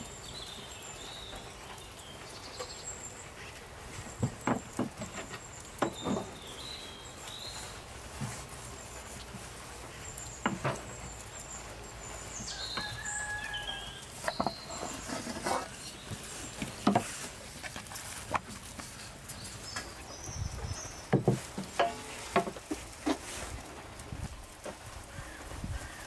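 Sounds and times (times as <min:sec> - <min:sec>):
birds singing: 0:00.0 - 0:22.4, 0:24.8 - 0:26.0
knocks and taps on wood: 0:21.1 - 0:22.6.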